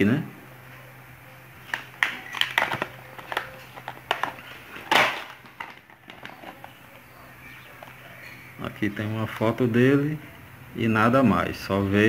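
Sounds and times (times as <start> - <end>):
plastic packaging crackling: 1.6 - 6.9.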